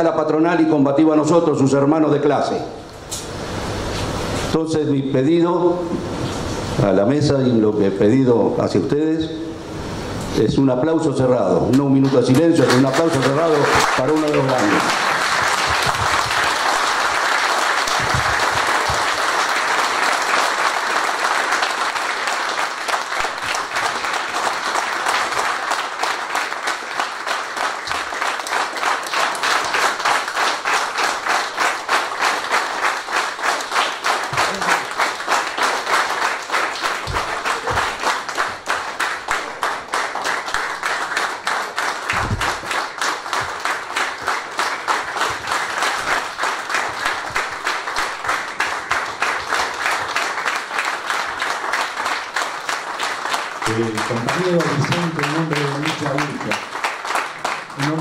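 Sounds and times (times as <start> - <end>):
crowd applauding: 11.7 - 58.0
rhythmic clapping in unison: 11.7 - 58.0.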